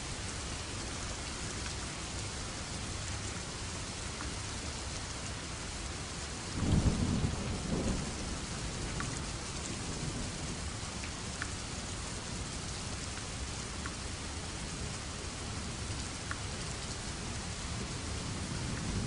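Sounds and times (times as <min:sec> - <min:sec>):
steady rain falling: 0:00.0 - 0:19.0
thunder rumbling: 0:06.6 - 0:10.7.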